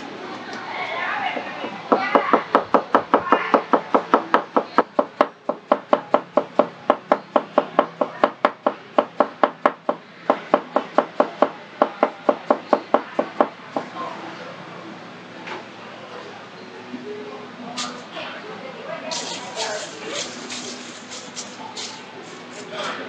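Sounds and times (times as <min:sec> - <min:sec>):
knife chopping onion on wooden board: 0:01.6 - 0:13.5.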